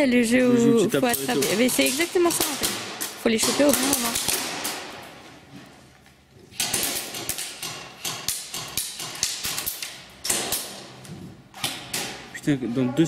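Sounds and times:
sharp irregular knocks and taps: 6.6s - 12.2s.

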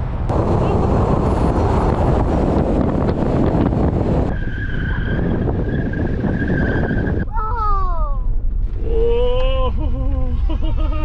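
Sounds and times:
engine running hard: 0.0s - 4.3s.

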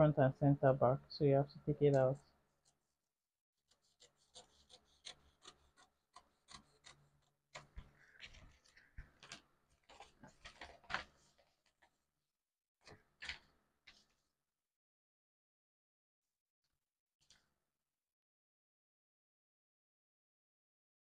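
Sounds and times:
paper rubbing and scratching: 3.7s - 11.9s.

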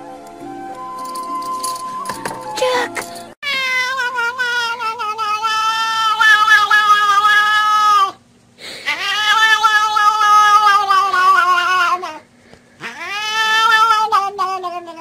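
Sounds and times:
pet howling: 3.4s - 8.2s, 8.9s - 12.2s, 12.8s - 15.0s.

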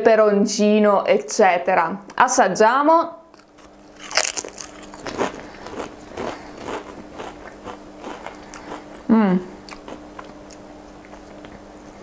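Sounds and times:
crunchy chewing: 3.3s - 12.0s.

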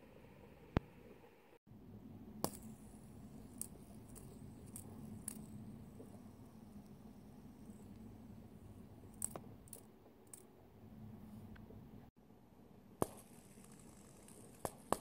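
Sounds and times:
fidget spinner clicks: 2.4s - 5.7s, 9.1s - 10.4s.

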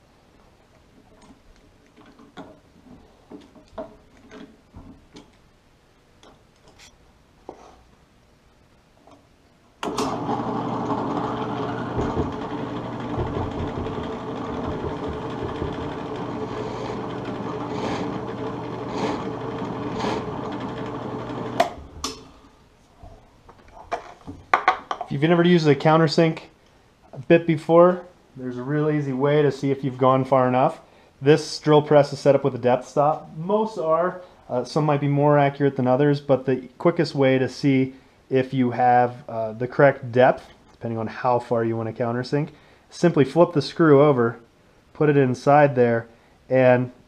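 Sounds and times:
drill press motor running: 9.8s - 21.9s
drill bit cutting wood: 10.1s - 21.7s.

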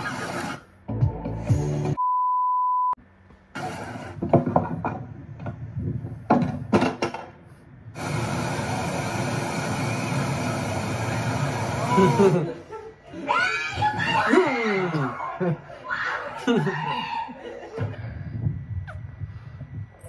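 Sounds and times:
background music: 0.9s - 2.0s
high censor beep: 2.0s - 3.0s.

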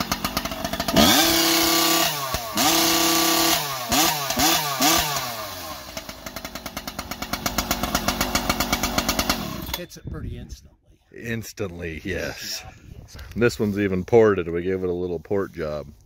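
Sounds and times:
chainsaw revving and idling: 0.0s - 9.8s.

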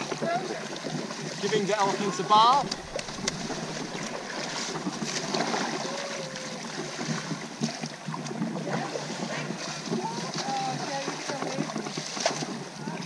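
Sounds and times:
river water splashing: 0.0s - 13.0s.

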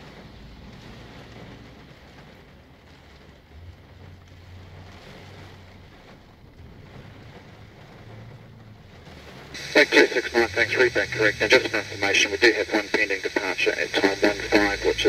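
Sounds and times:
rain pattering on a car: 0.0s - 15.0s
low hum: 9.6s - 15.0s.

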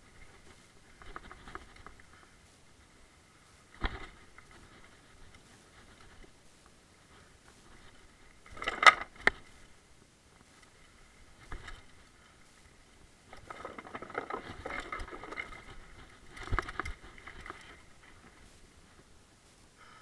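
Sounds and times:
mountain bike rattling and knocking: 0.0s - 2.3s, 3.7s - 6.3s, 7.8s - 9.7s, 10.7s - 12.2s, 13.2s - 18.4s.

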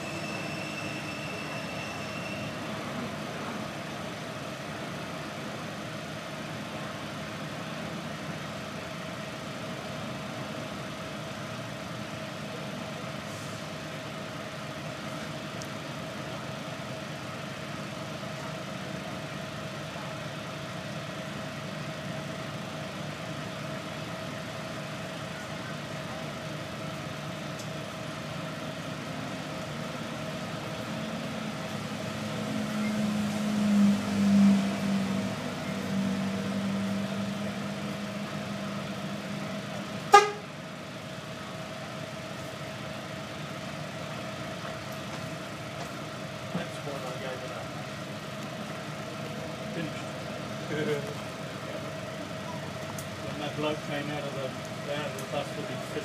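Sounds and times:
bus engine idling: 0.0s - 56.0s
deep engine drone: 25.4s - 56.0s.

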